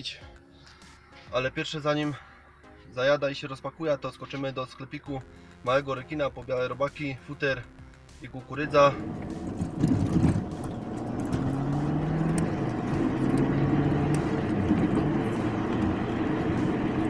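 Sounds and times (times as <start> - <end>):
car engine and tyre noise: 8.2 - 17.0.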